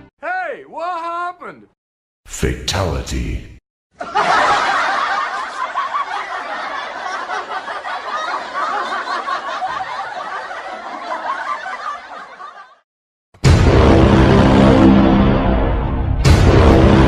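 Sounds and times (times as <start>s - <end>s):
chuckling laughter: 4.0s - 12.8s.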